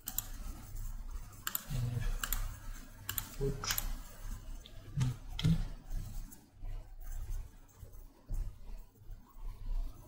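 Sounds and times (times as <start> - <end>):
computer mouse clicks: 0.0 - 4.0
steady low hum: 0.0 - 10.0.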